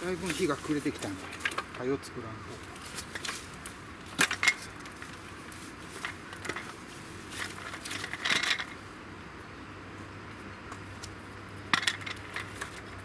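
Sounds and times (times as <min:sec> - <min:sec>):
dry branches knocking together: 0:00.0 - 0:08.8.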